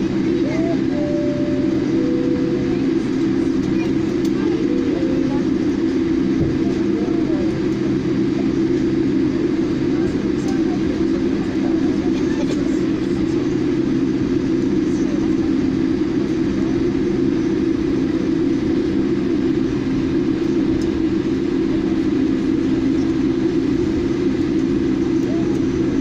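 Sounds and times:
aircraft engines humming: 0.0s - 26.0s.

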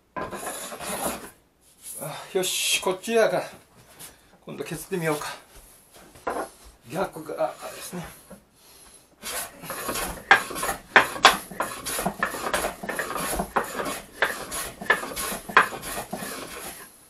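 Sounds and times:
hand plane scraping wood: 0.2s - 1.4s, 7.4s - 8.4s, 9.2s - 16.9s.

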